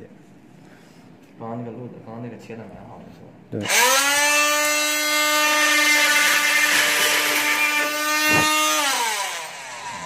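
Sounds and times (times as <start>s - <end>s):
multi-tool saw cutting plastic: 3.6s - 10.0s
cut-off piece knocking: 8.2s - 8.6s.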